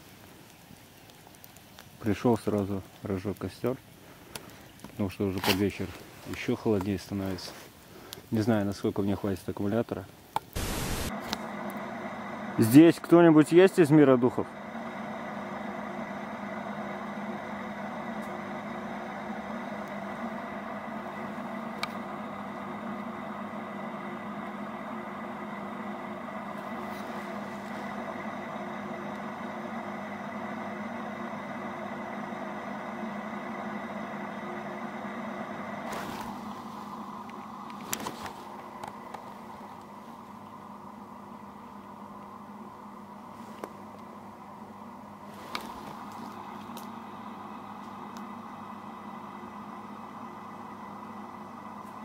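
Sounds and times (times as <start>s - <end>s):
faint hiss: 0.0s - 11.1s
droning hum of held tones: 10.6s - 52.0s.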